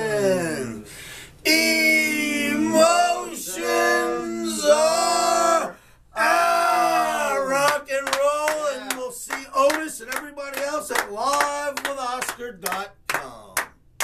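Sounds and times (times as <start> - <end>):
quick hand claps: 7.6 - 13.8.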